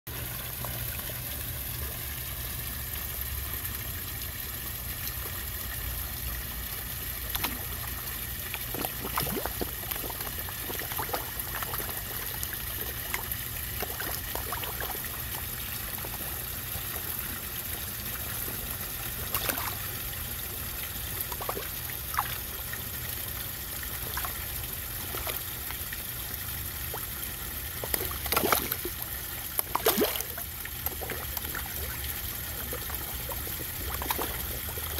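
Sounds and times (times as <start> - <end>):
fish splashing at water surface: 7.0 - 16.4, 18.3 - 23.0, 23.6 - 34.9.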